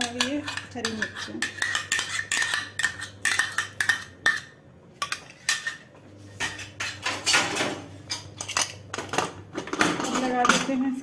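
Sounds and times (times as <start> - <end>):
spoon clinking against containers: 0.0 - 5.8.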